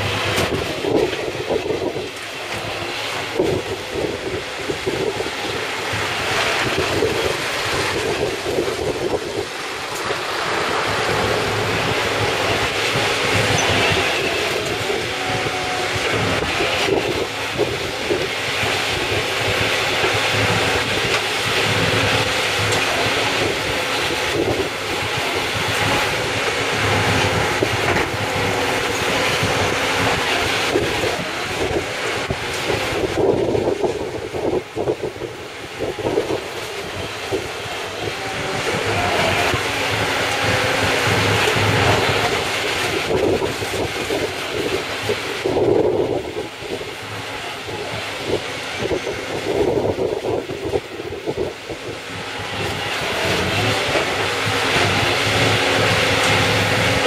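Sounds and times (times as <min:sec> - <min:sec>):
diesel engines and shredder din: 0:00.0 - 0:57.0
rumbling and clanking of tyres: 0:00.0 - 0:57.0.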